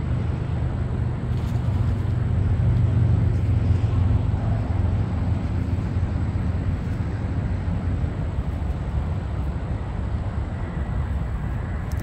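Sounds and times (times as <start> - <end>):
highway traffic drone: 0.0 - 12.0.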